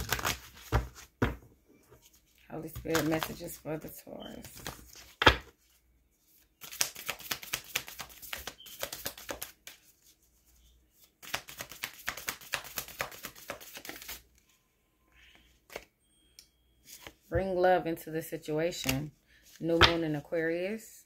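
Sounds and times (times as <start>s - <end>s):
cards being shuffled: 0.0s - 1.3s, 2.0s - 3.6s, 6.6s - 10.1s, 11.0s - 14.2s.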